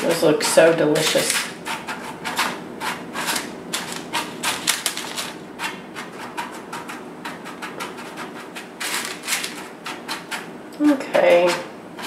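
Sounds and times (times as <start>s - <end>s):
paper crinkling: 2.9s - 5.8s, 7.9s - 10.3s.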